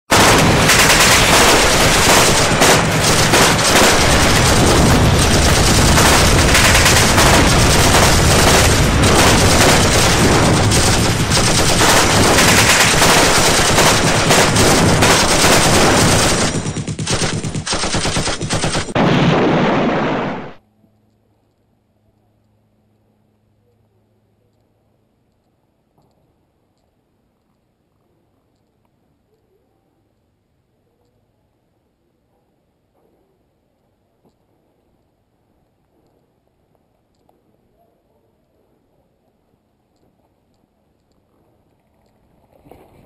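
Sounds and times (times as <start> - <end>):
rapid gunfire: 0.1 - 20.6.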